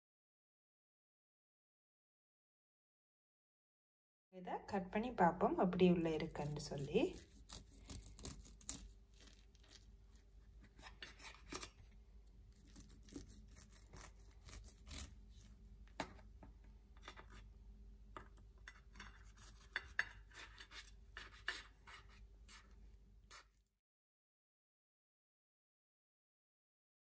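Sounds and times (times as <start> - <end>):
knife sawing through cake: 6.4 - 9.8, 10.6 - 11.8, 12.6 - 15.4
knife blade clicking on crust: 7.1 - 9.4.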